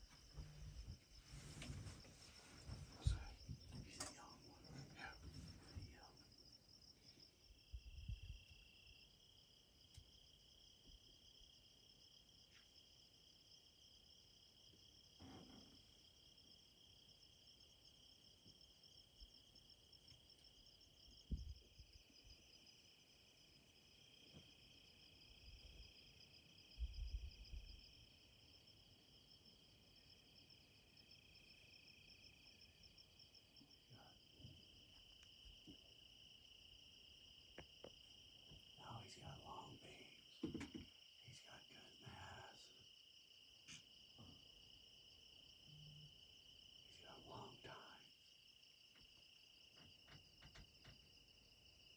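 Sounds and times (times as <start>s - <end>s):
crickets chirping: 0.0s - 51.9s.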